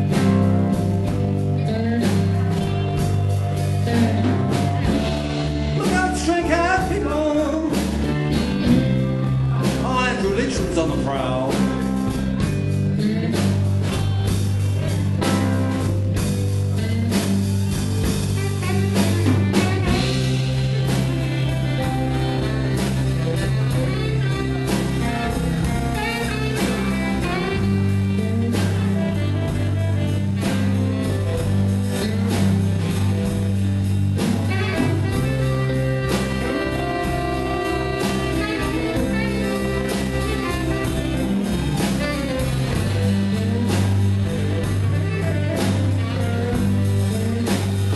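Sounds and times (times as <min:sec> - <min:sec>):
bass: 0:00.0 - 0:47.9
drums: 0:00.0 - 0:47.9
guitar lead line: 0:00.0 - 0:47.9.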